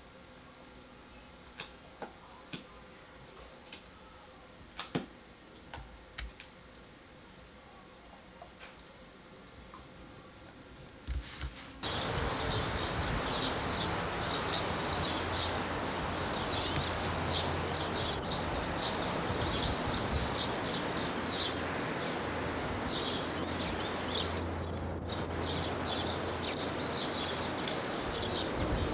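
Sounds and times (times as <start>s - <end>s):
steady noisy hiss: 0.0s - 28.9s
low hum: 11.8s - 28.9s.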